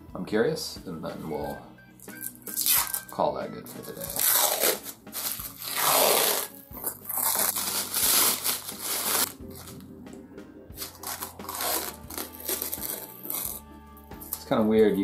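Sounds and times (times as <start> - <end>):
plastic film crinkling: 3.8 - 9.8, 10.8 - 13.6.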